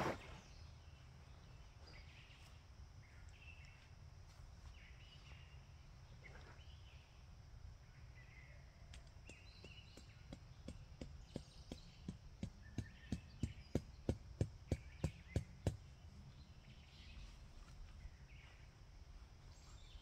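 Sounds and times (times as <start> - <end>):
mallet hammering tent stake: 9.3 - 15.9.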